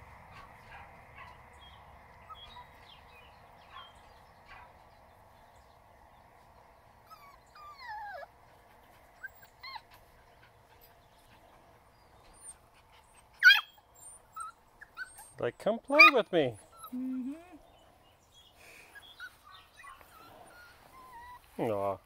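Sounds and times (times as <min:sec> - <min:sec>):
puppy whining: 0:07.0 - 0:08.4, 0:09.1 - 0:11.4, 0:12.0 - 0:17.7, 0:18.9 - 0:21.6
puppy whimpering: 0:07.1 - 0:08.3, 0:09.2 - 0:10.0, 0:12.2 - 0:17.6, 0:18.9 - 0:21.4.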